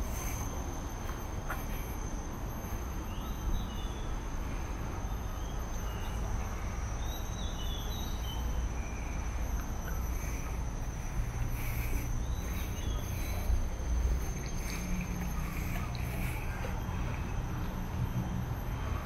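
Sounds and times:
high-pitched insect drone: 0.0 - 19.0
bird chirps: 7.0 - 16.7.

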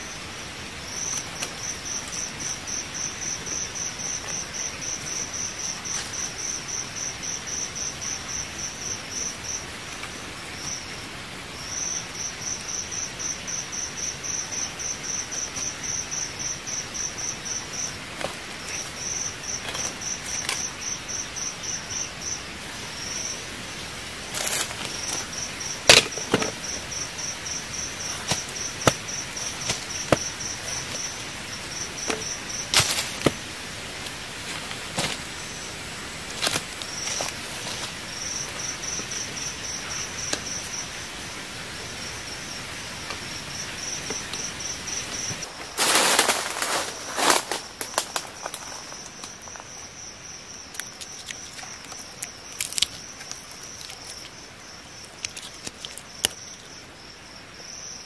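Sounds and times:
insect chirping: 0.0 - 58.0.

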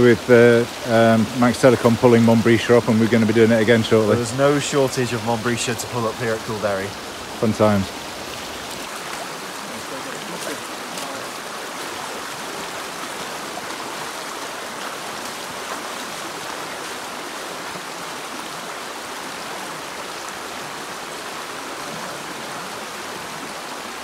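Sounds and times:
stream running over stones: 0.0 - 24.0
boots wading through water: 4.4 - 20.7.

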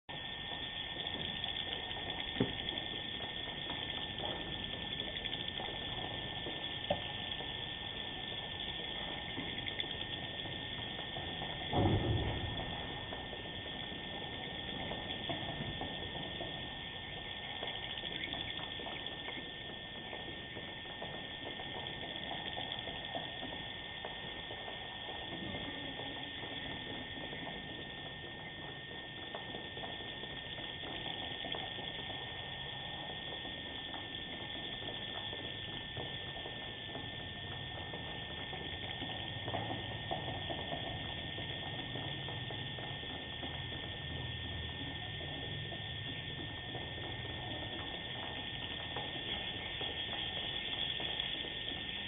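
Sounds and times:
swiftlets chirping and clicking: 0.1 - 24.3
steady hiss: 0.1 - 52.0
swiftlets clicking and twittering: 0.1 - 52.0
thin electronic whine: 0.1 - 52.0.

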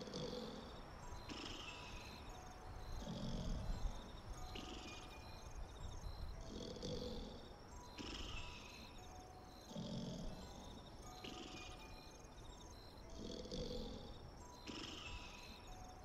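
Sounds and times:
high repeated chirping: 1.0 - 13.2.

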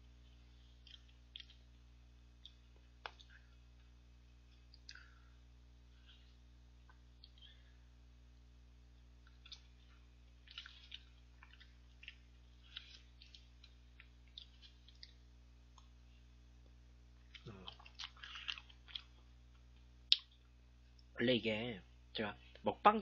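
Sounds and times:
chewing mouth noises: 0.3 - 1.7, 9.2 - 15.2, 17.3 - 20.4.

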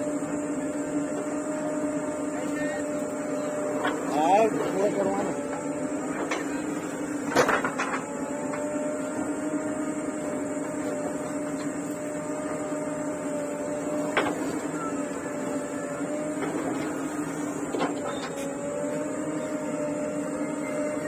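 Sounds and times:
diesel engine running under load: 0.0 - 21.0.

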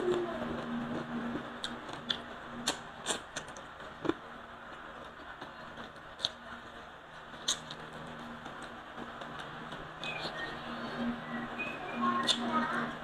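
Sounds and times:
man chewing with wet smacks: 1.6 - 6.4, 7.4 - 7.9.

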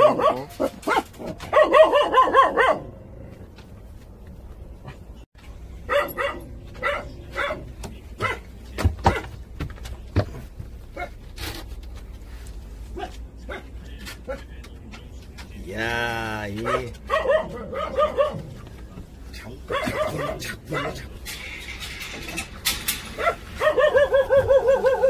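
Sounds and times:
puppies yipping: 23.2 - 25.0.

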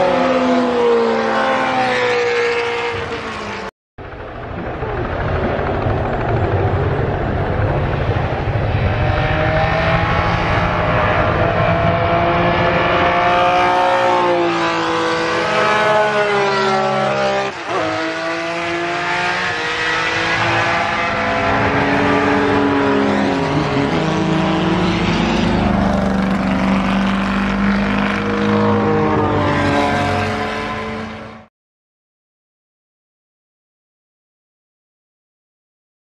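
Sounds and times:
racing cars passing at speed: 0.0 - 3.7, 7.1 - 31.5.

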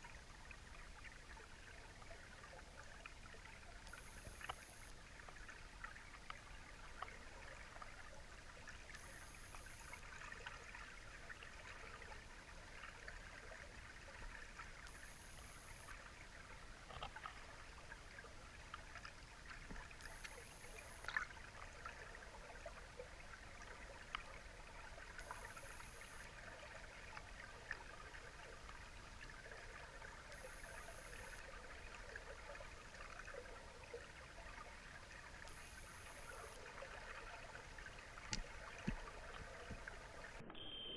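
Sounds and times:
low underwater hiss: 0.0 - 40.4
small crackles and clicks: 3.8 - 5.5, 8.9 - 10.6, 14.8 - 16.0, 16.8 - 17.5, 19.6 - 21.3, 25.2 - 26.3, 30.3 - 31.4, 35.4 - 36.6, 38.2 - 40.9
high thin tone: 3.9 - 4.9, 9.0 - 10.0, 14.9 - 15.9, 20.0 - 21.1, 25.2 - 26.3, 30.4 - 31.4, 35.5 - 36.6.

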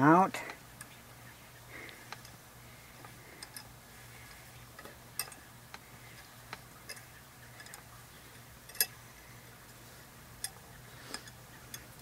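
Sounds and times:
faint low hum: 0.0 - 12.0
faint wrench clicks: 3.0 - 7.9, 8.6 - 9.0, 10.4 - 12.0.

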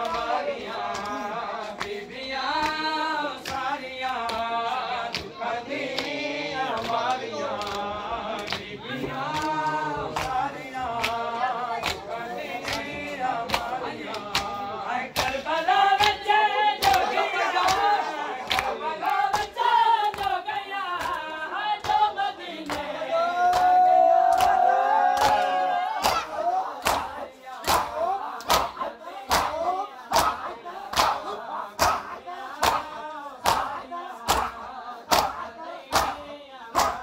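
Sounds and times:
men chanting in chorus: 0.0 - 37.0
chest-beating slaps: 26.0 - 36.2.

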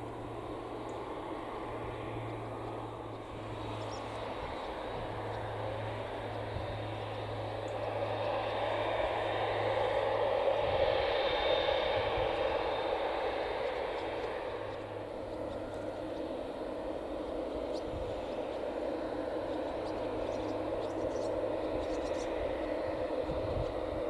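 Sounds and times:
high engine whine: 0.0 - 24.0
jet engines running: 0.0 - 24.0.

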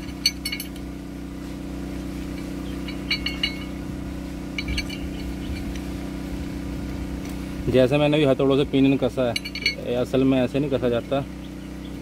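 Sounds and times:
metal bolts clinking: 0.0 - 0.9, 2.4 - 3.8, 4.5 - 5.9, 9.0 - 10.3
steady low hum: 0.0 - 12.0.

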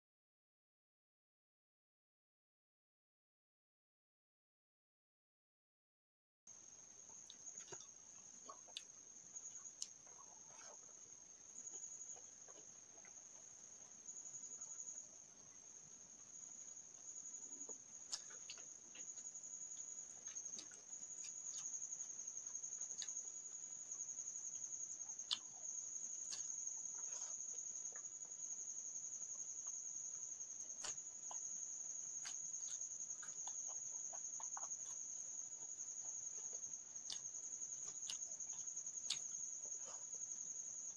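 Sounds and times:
person eating by hand: 7.0 - 15.1, 16.2 - 40.9.

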